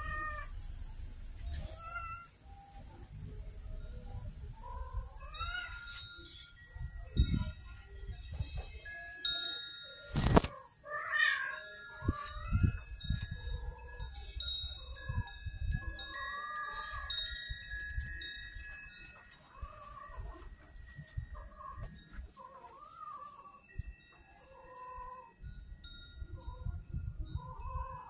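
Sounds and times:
cats meowing: 0.0s - 0.6s, 1.5s - 2.4s, 4.6s - 6.0s, 10.3s - 12.5s, 19.4s - 20.6s, 21.4s - 23.6s
tinkling chime-like tones: 0.0s - 28.0s.

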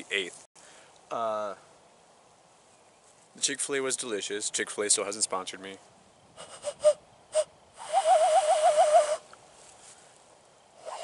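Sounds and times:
hand whistle blowing: 6.4s - 9.3s.

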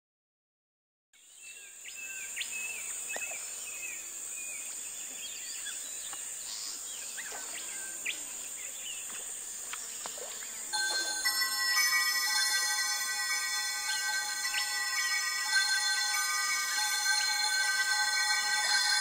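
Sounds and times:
high insect chorus: 1.2s - 19.0s
bird chirps: 9.9s - 19.0s.

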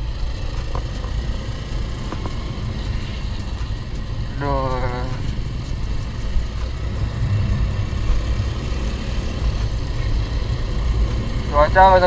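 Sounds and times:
motorcycle engine rumble: 0.0s - 12.0s
wind on microphone: 6.0s - 10.2s.

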